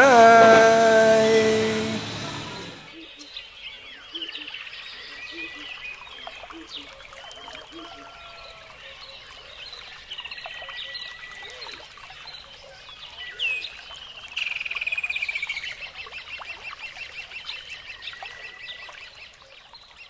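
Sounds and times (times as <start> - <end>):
sharp loud bird call: 0.0 - 2.9.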